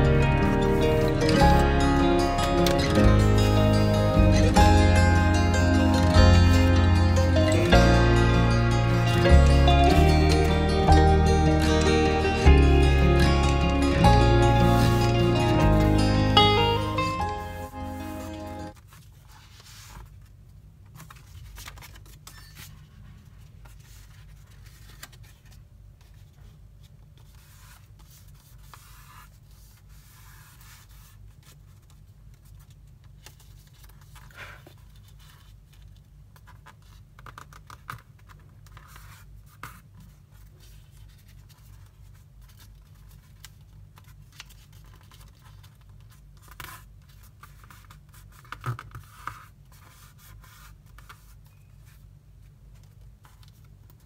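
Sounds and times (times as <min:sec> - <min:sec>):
paper folding and creasing: 0:14.6 - 0:54.0
paper crinkles: 0:16.7 - 0:54.0.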